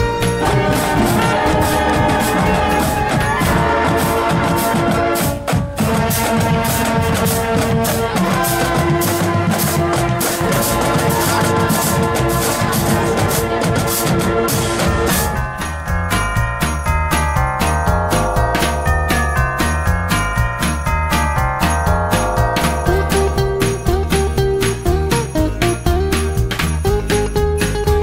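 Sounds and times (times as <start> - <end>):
sustained brass notes: 0.0 - 16.1
marching band playing: 0.0 - 27.0
fast steady drum beat: 0.0 - 28.0.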